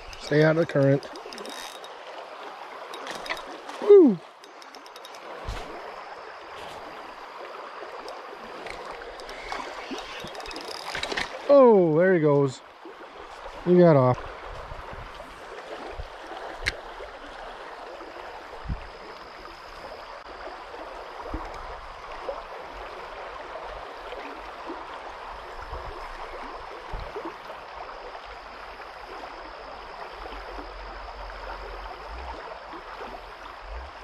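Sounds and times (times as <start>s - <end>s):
creek water running: 0.0s - 34.0s
soft knocks of fishing rod: 2.9s - 5.8s.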